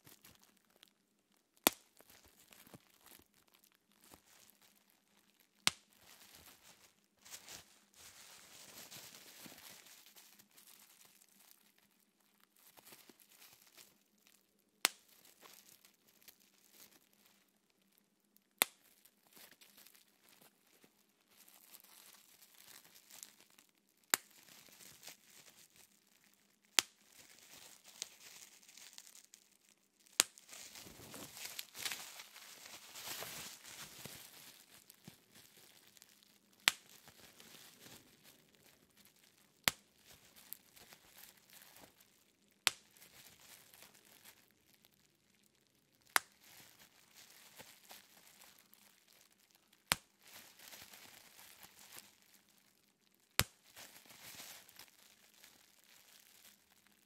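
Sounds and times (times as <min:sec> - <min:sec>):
bubble wrap crinkling: 0:00.0 - 0:57.0
bubble wrap popping: 0:00.0 - 0:57.0.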